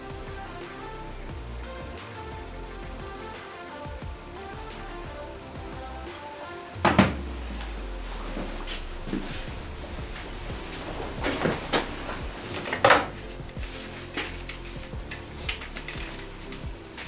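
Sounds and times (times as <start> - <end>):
faint background music: 0.0 - 17.0
knocks and clunks: 6.8 - 7.8.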